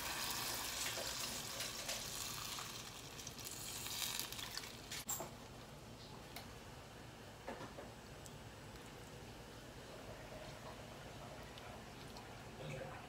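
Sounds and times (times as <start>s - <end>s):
broth pouring into a pan: 0.0s - 5.0s
pan sizzling: 0.0s - 5.1s.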